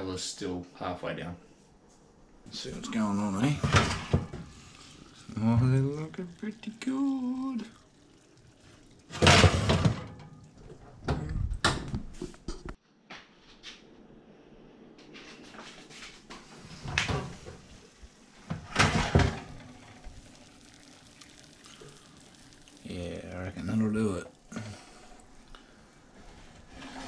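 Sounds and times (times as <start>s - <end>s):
oven door shutting and opening: 3.5s - 4.4s, 18.5s - 19.6s.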